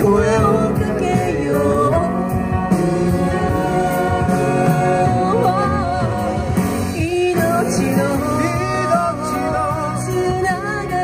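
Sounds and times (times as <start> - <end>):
man and woman singing duet: 0.0 - 11.0.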